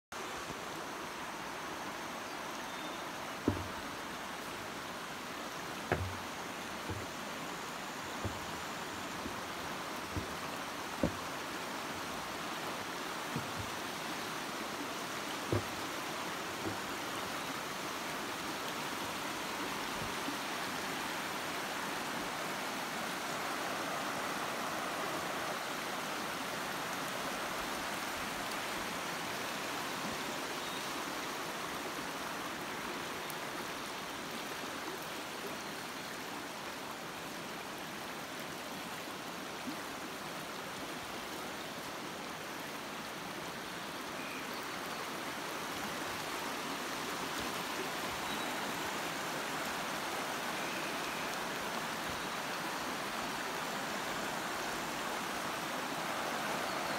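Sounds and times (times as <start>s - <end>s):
stream flowing over stones: 0.1s - 56.9s.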